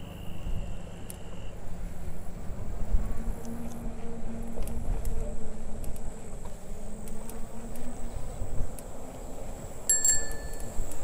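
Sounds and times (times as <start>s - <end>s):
bicycle tyre rumble: 0.0s - 11.0s
wind buffeting microphone: 0.0s - 11.0s
thin high whine: 9.8s - 11.0s
bright metallic ring: 9.9s - 10.9s.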